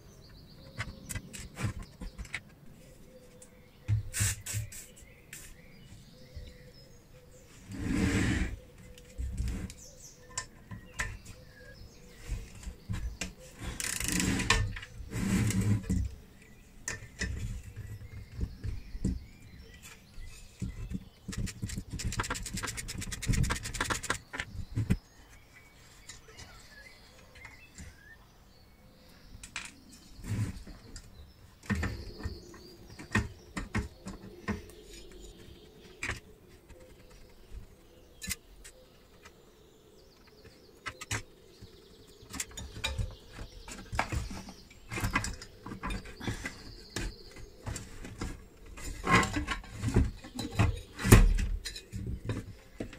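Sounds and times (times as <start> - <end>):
hand tools on metal case: 7.7 - 25.1, 29.4 - 37.4, 42.2 - 52.9.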